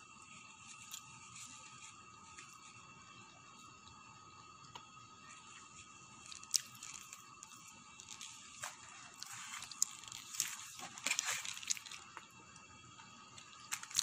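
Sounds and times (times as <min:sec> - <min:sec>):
crunchy chewing of pizza: 0:00.1 - 0:14.0.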